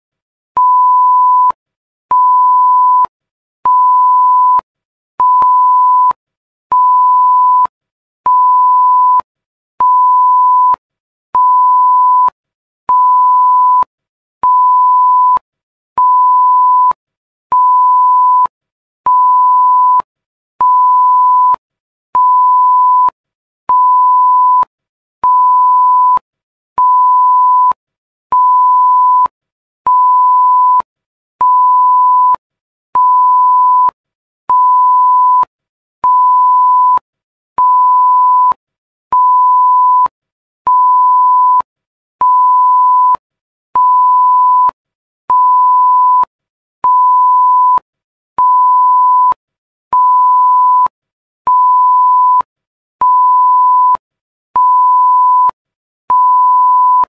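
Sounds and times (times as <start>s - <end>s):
censor bleep tone: 22.2s - 26.2s, 29.9s - 32.4s, 33.0s - 37.0s, 37.6s - 38.6s, 39.2s - 40.1s, 40.7s - 43.2s, 43.8s - 47.8s, 48.4s - 49.4s, 50.0s - 50.9s, 51.5s - 54.0s, 54.6s - 57.0s.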